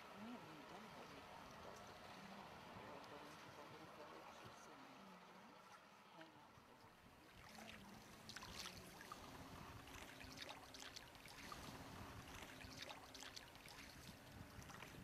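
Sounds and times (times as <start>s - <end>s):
oars splashing in water: 5.6s - 15.0s.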